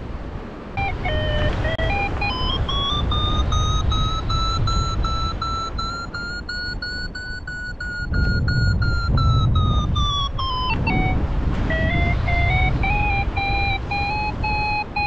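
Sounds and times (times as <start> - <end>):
wind on microphone: 0.0 - 15.0
variometer beeping: 0.8 - 15.0.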